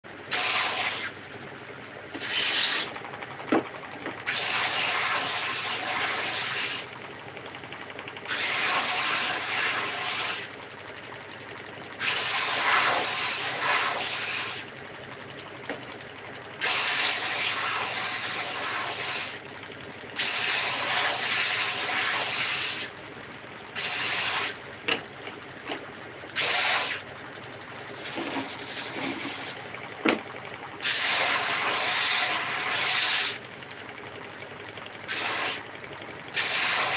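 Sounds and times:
belt sander running: 0:27.7 - 0:30.3.

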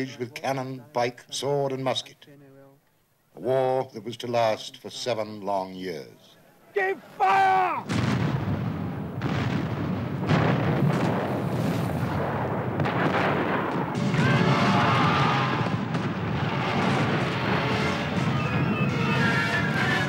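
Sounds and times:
cannon and musket shots: 0:07.8 - 0:20.0
continuous battle din: 0:07.8 - 0:20.0.

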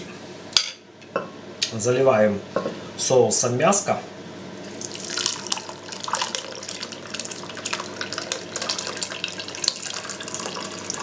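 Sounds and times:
sauce pouring and splashing: 0:04.7 - 0:11.0.

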